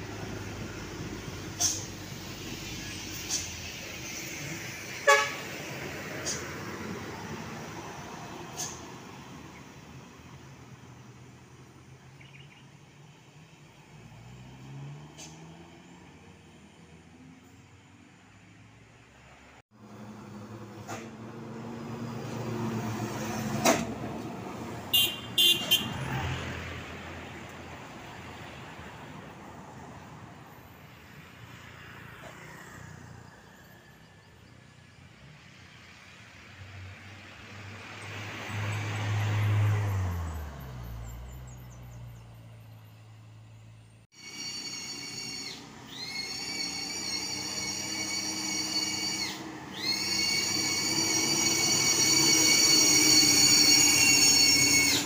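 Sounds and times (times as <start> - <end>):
diesel trucks passing: 0.0 - 55.0
short horn toots: 5.0 - 5.5, 24.9 - 26.0
truck engine whining: 19.8 - 28.4, 42.2 - 55.0.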